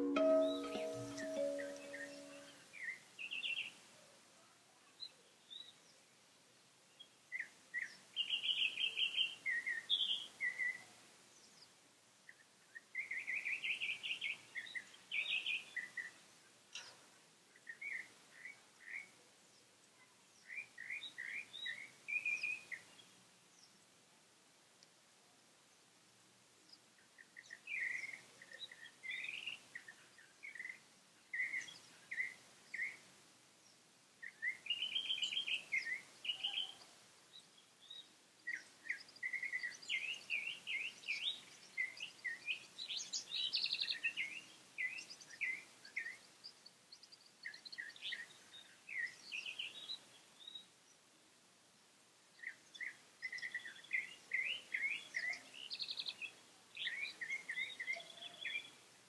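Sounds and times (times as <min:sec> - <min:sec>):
small birds chirping: 0:00.0 - 0:04.1, 0:04.8 - 0:06.2, 0:06.9 - 0:24.0, 0:26.6 - 0:59.0.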